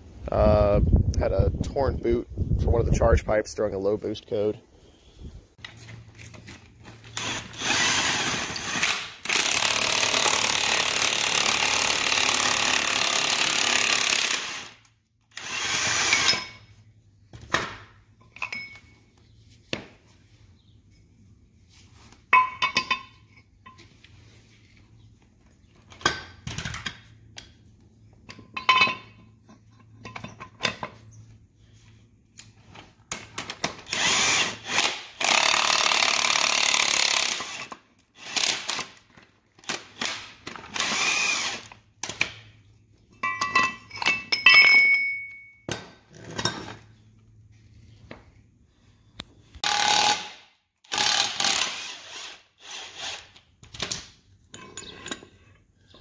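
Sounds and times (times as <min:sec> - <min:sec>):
metallic clinks of tools: 0:18.2 - 0:19.1, 0:22.3 - 0:23.8, 0:43.1 - 0:45.8.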